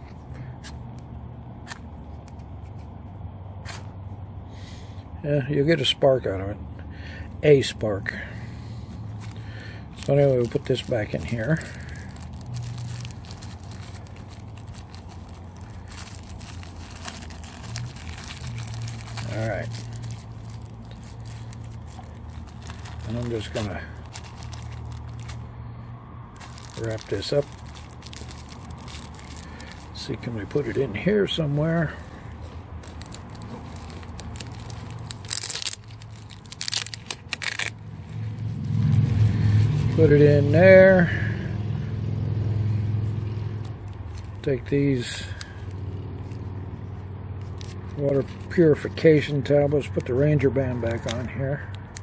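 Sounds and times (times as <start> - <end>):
road traffic rumble: 0.0 - 52.0
plastic bag crinkling: 8.1 - 25.5, 26.3 - 40.1, 43.8 - 46.5, 47.4 - 50.1.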